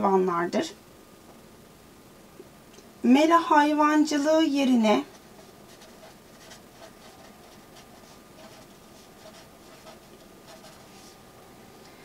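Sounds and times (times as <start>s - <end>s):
marker pen scratching on paper: 4.9s - 11.2s.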